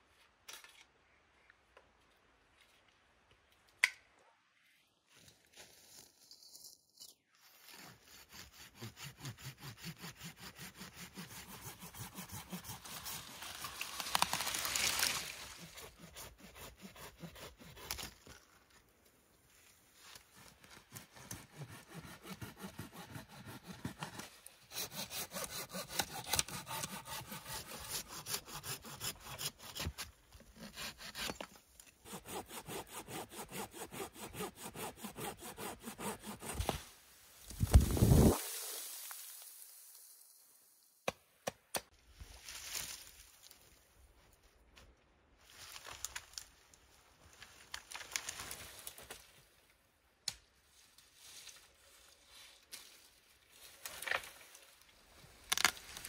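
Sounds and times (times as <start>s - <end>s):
hand saw cutting wood: 7.4s - 13.8s, 15.6s - 18.2s, 20.7s - 36.8s.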